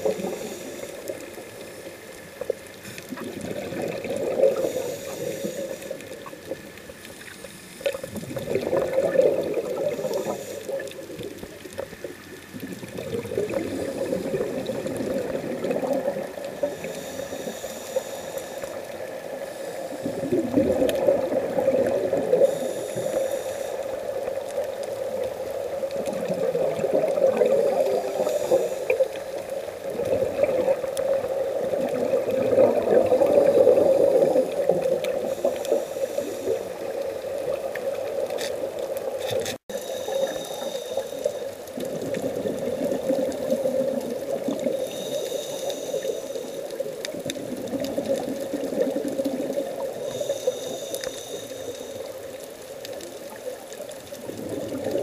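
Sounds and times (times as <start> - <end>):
regulator hissing on inhale: 0.0 - 3.4, 4.3 - 8.2, 9.6 - 12.1, 13.2 - 25.6, 26.8 - 31.6, 32.7 - 38.3, 39.7 - 41.9, 43.0 - 47.3, 49.6 - 53.5
exhaled air bubbling underwater: 0.0 - 55.0.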